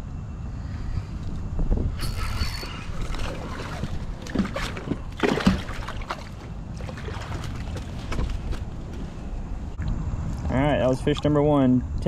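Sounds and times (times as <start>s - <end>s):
fish splashing at water surface: 2.0s - 8.5s.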